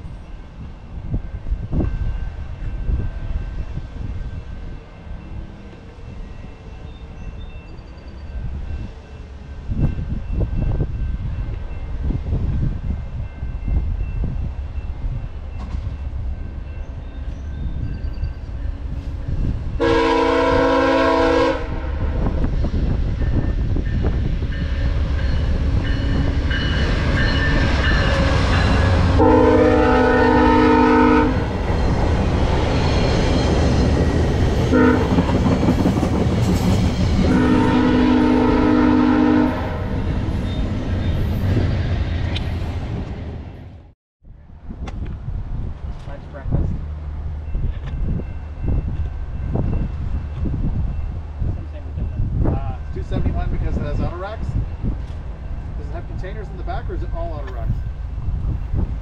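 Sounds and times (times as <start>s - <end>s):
train wheels clattering on rails: 15.4s - 19.4s, 31.5s - 37.4s
locomotive horn: 19.8s - 22.3s, 27.5s - 31.6s, 34.7s - 35.4s, 37.2s - 40.1s.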